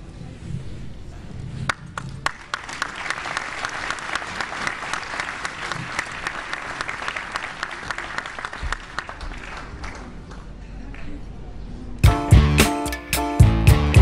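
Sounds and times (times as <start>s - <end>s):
audience applauding: 1.7s - 10.6s.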